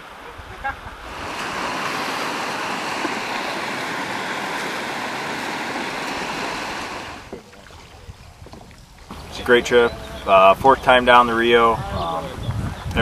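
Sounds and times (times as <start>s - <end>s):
river water rushing: 0.0s - 8.0s.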